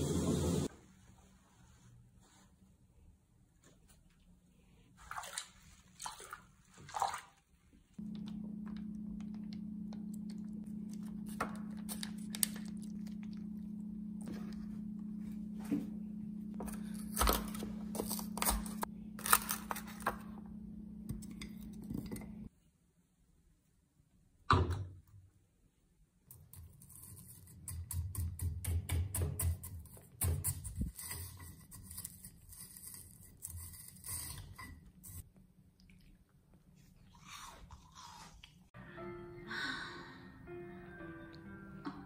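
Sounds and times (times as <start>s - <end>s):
water swishing in bathtub: 4.4s - 8.0s
low hum: 7.9s - 22.5s.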